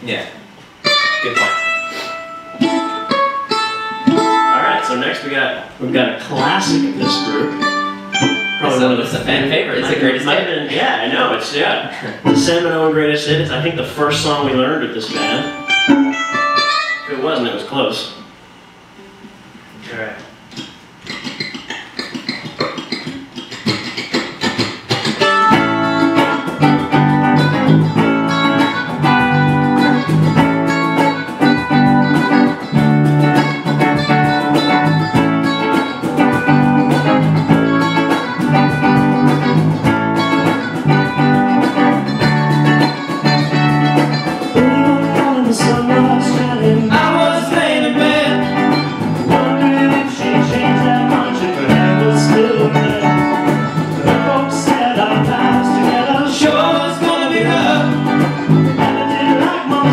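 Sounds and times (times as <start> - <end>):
cajon beat: 0.0 - 17.1, 20.2 - 59.9
electric guitars: 0.0 - 17.8, 19.0 - 59.9
live band playing: 0.8 - 5.4, 6.3 - 10.5, 13.3 - 17.2, 20.5 - 59.9
mandolin: 0.9 - 5.0, 6.4 - 10.3, 15.1 - 17.2.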